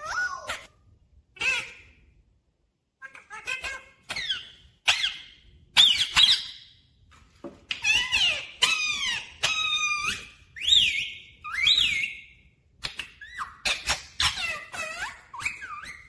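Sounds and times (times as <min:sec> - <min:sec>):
parakeet whistled calls: 0:03.6 - 0:06.7, 0:07.8 - 0:16.0.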